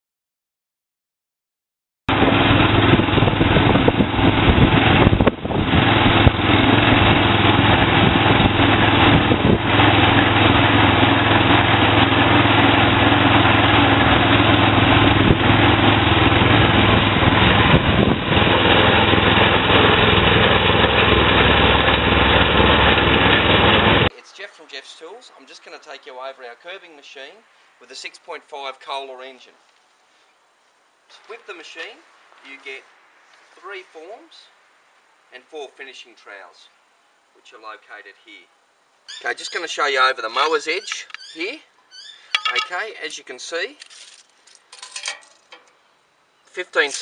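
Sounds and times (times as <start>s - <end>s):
petrol engine running: 2.1s - 24.1s.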